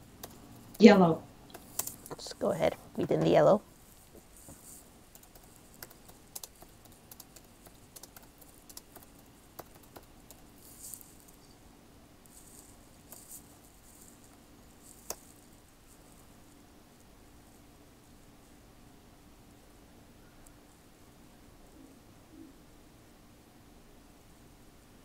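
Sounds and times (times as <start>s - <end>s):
soft rustles: 1.6s - 5.8s, 10.6s - 11.6s, 12.2s - 16.6s
keyboard typing clicks: 5.1s - 10.5s.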